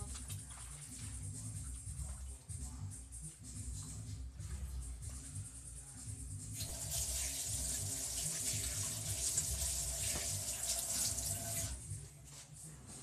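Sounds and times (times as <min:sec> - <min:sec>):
tap water running: 0:06.6 - 0:11.8.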